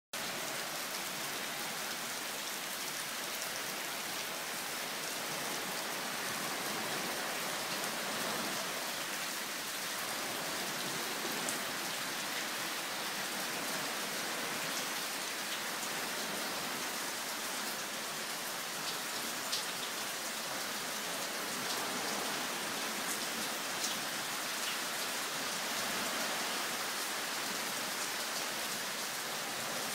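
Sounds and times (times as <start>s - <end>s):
heavy rain on leaves and paving: 0.1s - 29.9s.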